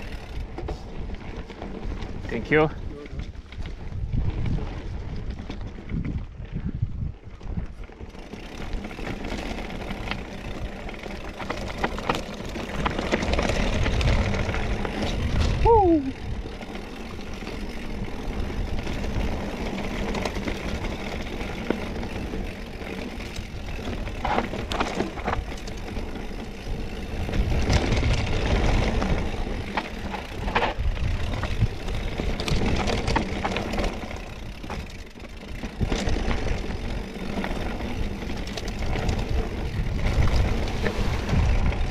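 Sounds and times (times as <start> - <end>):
bike knocking and rattling: 0.0 - 41.9
tyres rumbling on dirt trail: 0.0 - 41.9
wind on microphone: 2.8 - 7.8, 13.7 - 16.5, 26.7 - 32.9, 38.8 - 41.9.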